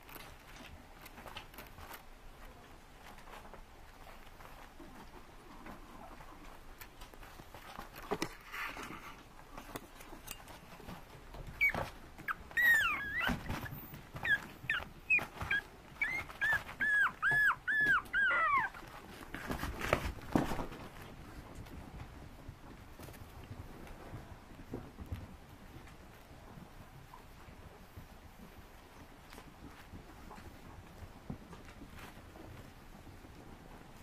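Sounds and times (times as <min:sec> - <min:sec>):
puppy yipping: 0:11.4 - 0:18.9.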